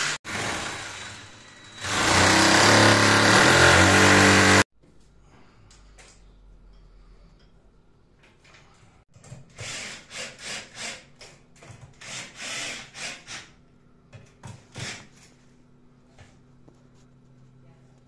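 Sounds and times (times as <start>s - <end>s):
cordless drill driving screws: 12.0s - 13.5s.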